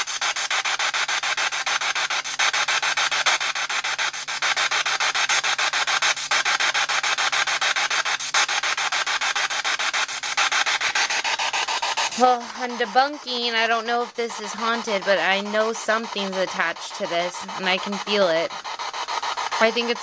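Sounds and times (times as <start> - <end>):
chopped radio static: 10.3 - 18.7, 19.4 - 20.0.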